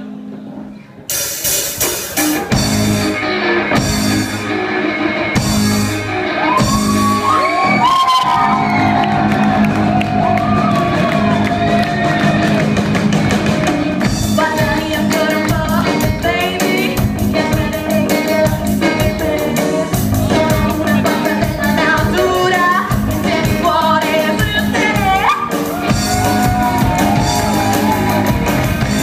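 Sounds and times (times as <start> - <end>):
bass guitar: 0.0 - 29.0
electric guitar: 0.0 - 29.0
drum kit: 1.0 - 29.0
female lead singer: 14.2 - 28.3.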